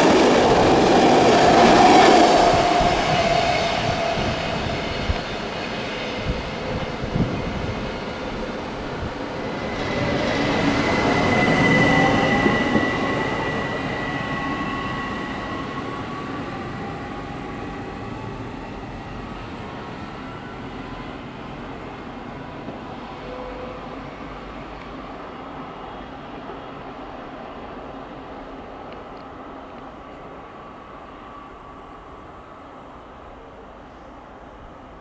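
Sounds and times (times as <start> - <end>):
electric train pulling away: 0.0 - 24.8.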